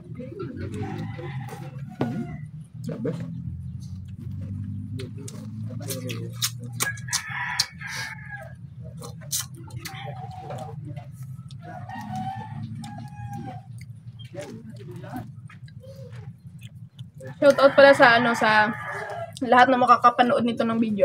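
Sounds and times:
rooster crowing: 0:00.7 - 0:02.6, 0:06.8 - 0:08.7, 0:10.0 - 0:13.8, 0:17.2 - 0:19.4.

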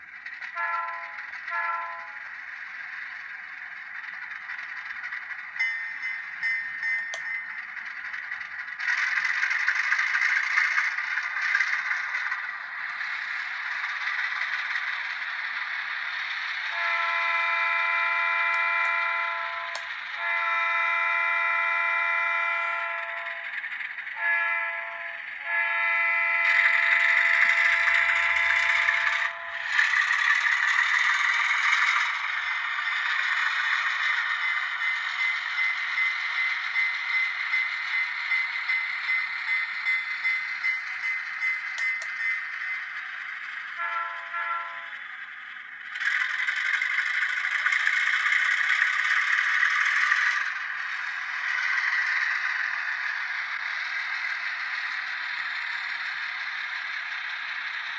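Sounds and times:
model train horn blasts: 0:00.6 - 0:02.2, 0:16.7 - 0:23.4, 0:24.2 - 0:29.6, 0:43.8 - 0:44.9.

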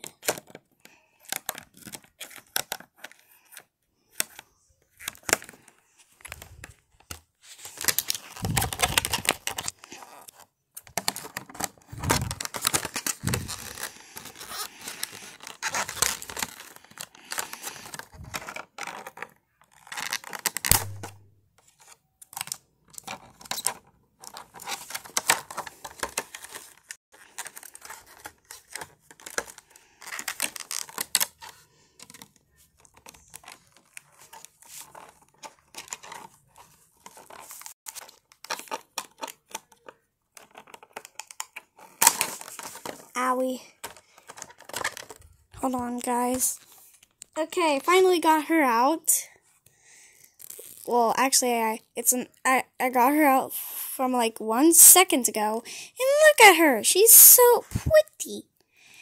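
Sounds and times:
packaging tearing and crinkling: 0:07.5 - 0:21.2, 0:21.8 - 0:43.1, 0:43.8 - 0:45.4, 0:50.3 - 0:50.9.

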